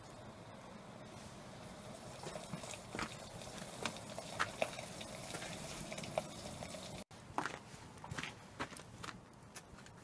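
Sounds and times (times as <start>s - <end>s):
faint steady hiss: 0.0s - 7.1s
wood fire crackling: 0.0s - 7.1s.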